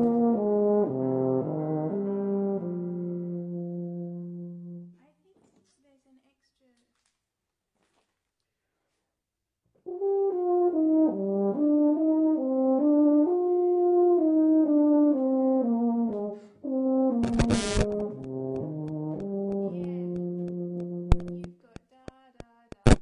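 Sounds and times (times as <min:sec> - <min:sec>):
euphonium melody: 0:00.0 - 0:04.9, 0:09.9 - 0:21.5.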